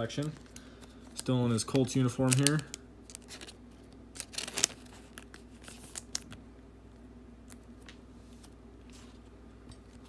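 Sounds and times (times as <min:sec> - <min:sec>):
plastic sleeve crinkling: 0:00.0 - 0:06.4.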